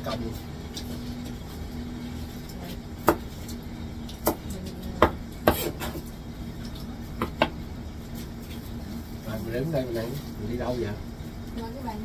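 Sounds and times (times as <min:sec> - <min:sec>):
knife chopping on cutting board: 0:03.0 - 0:03.3, 0:05.0 - 0:06.0.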